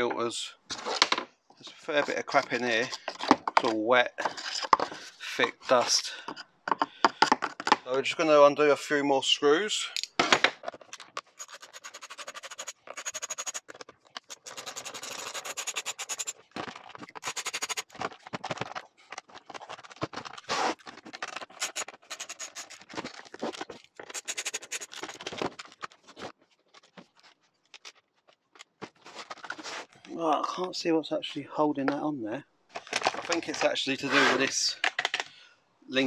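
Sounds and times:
hand tool clicking and scraping: 0:10.9 - 0:18.1, 0:20.4 - 0:23.0, 0:24.0 - 0:25.2.

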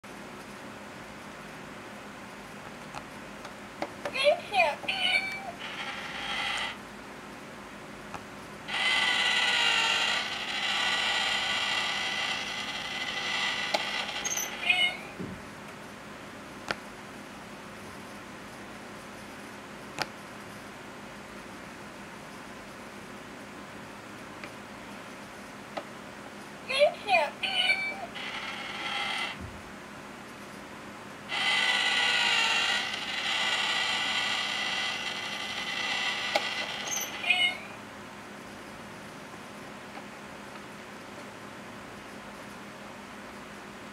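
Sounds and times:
toy motor whirring: 0:04.5 - 0:06.8, 0:08.7 - 0:15.0, 0:27.0 - 0:29.4, 0:31.3 - 0:37.6.

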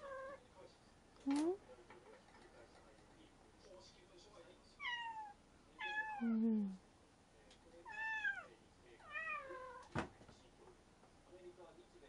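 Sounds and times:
cat meowing: 0:04.8 - 0:06.3, 0:07.9 - 0:09.9.

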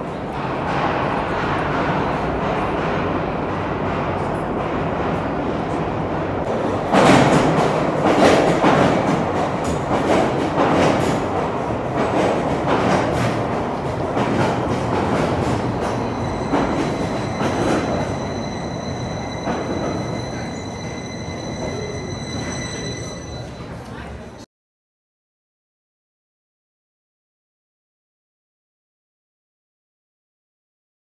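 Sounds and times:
train rumble: 0:00.0 - 0:24.4
wheels squealing: 0:16.0 - 0:23.8.

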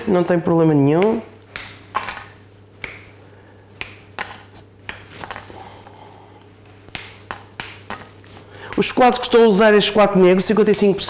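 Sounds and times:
low steady hum: 0:00.0 - 0:11.0
chocolate snapping: 0:01.0 - 0:03.1, 0:06.8 - 0:08.1.

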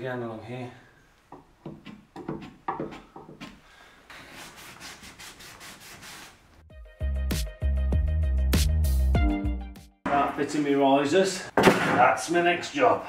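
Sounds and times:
chisel scraping wood: 0:01.3 - 0:06.0
damp rag wiping wood: 0:01.8 - 0:06.5.

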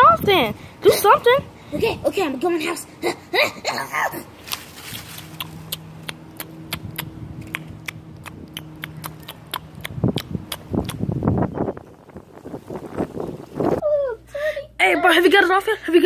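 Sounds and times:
leaves rustling: 0:03.9 - 0:06.3, 0:11.2 - 0:13.8
dry leaves crackling on pavement: 0:04.3 - 0:06.0.

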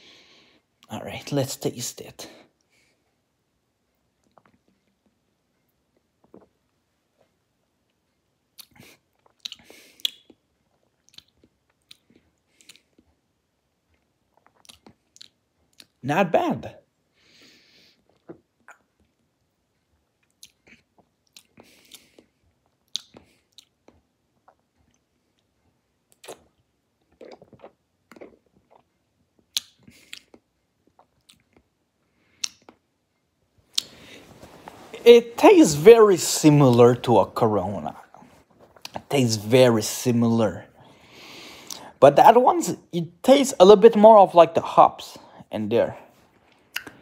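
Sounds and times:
wet lip and tongue smacks: 0:08.6 - 0:10.4, 0:11.0 - 0:13.0, 0:14.4 - 0:16.0, 0:20.2 - 0:25.0, 0:26.1 - 0:28.8, 0:29.5 - 0:31.7, 0:32.3 - 0:32.8, 0:46.7 - 0:47.0.

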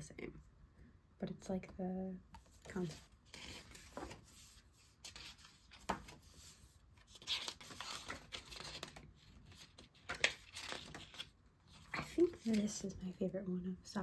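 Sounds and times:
book pages turning: 0:02.4 - 0:12.9
paper rustling: 0:02.4 - 0:13.0.

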